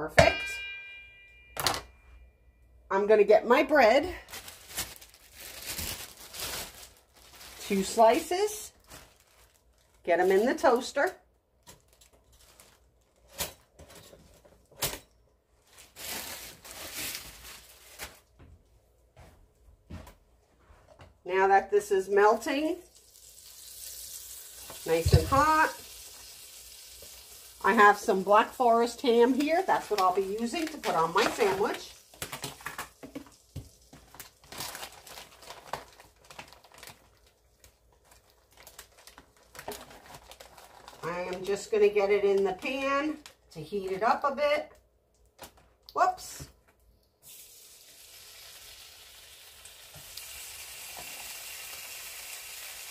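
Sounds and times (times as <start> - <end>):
rustling: 4.2 - 10.6
plastic package crinkling and tearing: 4.2 - 10.8, 11.6 - 13.7, 15.6 - 18.4, 29.2 - 41.5.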